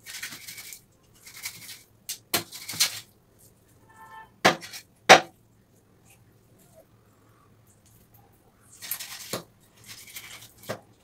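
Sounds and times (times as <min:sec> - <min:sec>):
knife scraping fish: 0:00.0 - 0:01.8, 0:02.4 - 0:03.1, 0:08.7 - 0:10.8.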